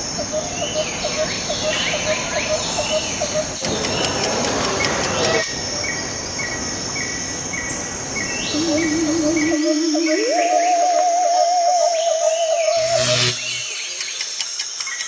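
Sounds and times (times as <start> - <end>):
insects chirping: 0.0 - 15.0
wavering electronic tone: 12.6 - 14.0
steady hiss: 12.8 - 15.0.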